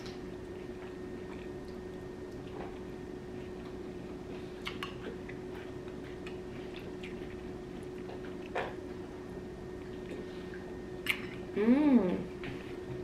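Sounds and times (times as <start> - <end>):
soft chewing: 0.0 - 9.0
steady low hum: 0.0 - 13.0.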